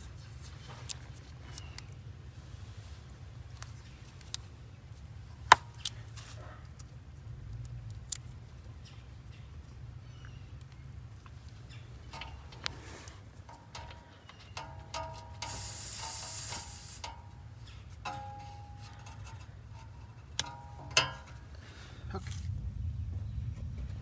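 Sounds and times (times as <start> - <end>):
low rumble: 22.0 - 24.0.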